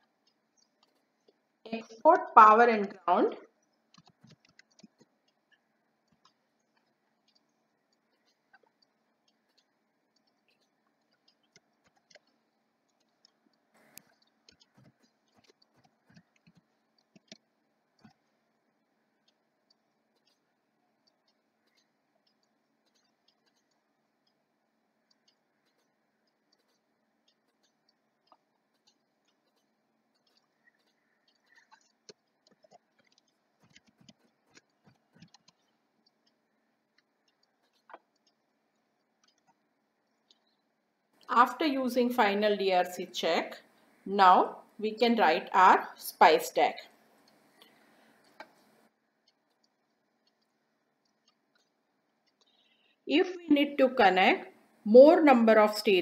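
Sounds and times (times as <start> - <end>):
keyboard typing: 0.0 - 18.3, 19.1 - 24.4, 25.0 - 40.6.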